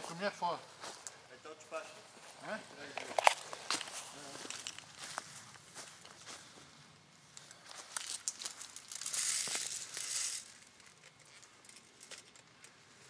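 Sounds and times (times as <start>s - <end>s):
dry leaves crunching underfoot: 3.1s - 6.5s, 7.5s - 10.6s.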